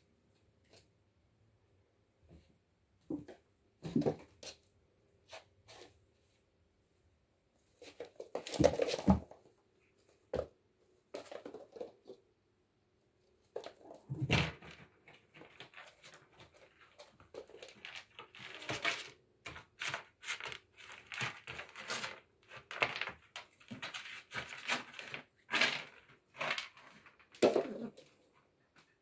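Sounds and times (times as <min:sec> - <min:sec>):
kittens scuffling and scratching: 0:07.6 - 0:12.2, 0:13.4 - 0:29.0.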